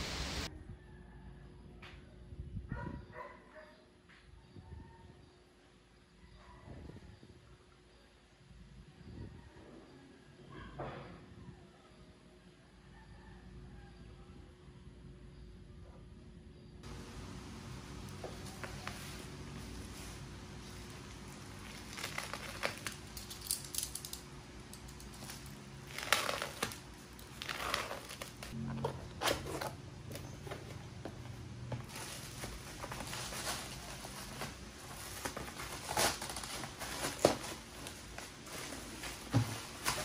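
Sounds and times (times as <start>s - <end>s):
plastic mailer crinkling and tearing: 18.4s - 28.6s, 31.9s - 40.0s.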